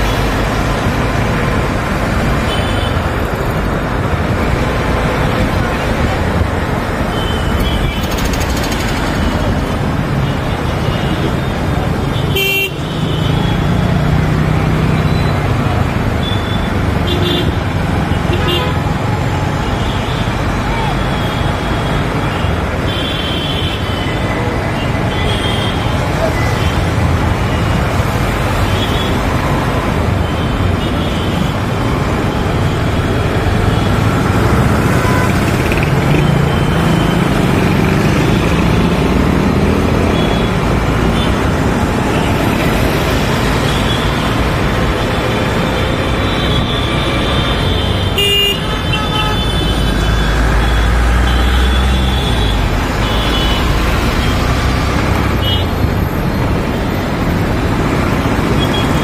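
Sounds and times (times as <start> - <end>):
wind and road noise: 0.0 - 59.0
motorbike engine: 7.9 - 9.6
vehicle horn toots: 47.8 - 49.8.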